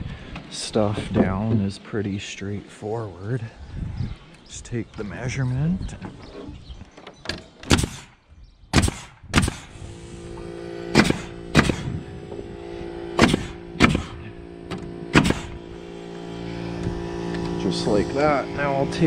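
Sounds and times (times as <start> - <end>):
nail gun firing: 7.6 - 9.8, 10.9 - 11.9, 13.2 - 15.6
steady hum: 8.8 - 19.0.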